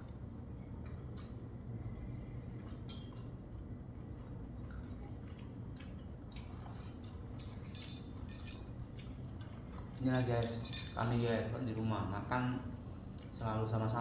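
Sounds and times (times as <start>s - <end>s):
steady low hum: 0.0s - 14.0s
spoons clinking on plates: 7.4s - 8.7s, 10.1s - 11.2s.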